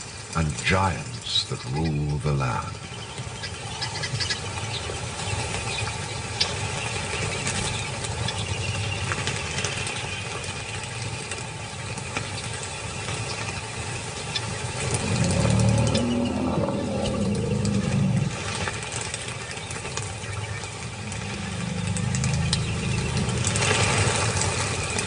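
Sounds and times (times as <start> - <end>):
small birds chirping: 0.0 - 25.0
deeper loud rumble: 14.8 - 19.0, 20.1 - 25.0
steady low rumble: 14.8 - 25.0.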